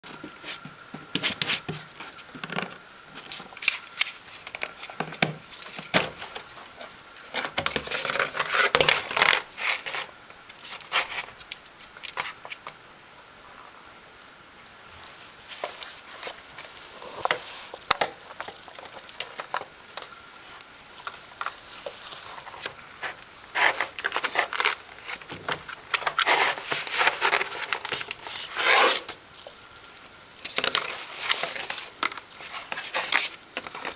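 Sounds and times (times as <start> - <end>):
ferret rummaging and scrabbling: 20.4 - 29.1, 30.5 - 33.9.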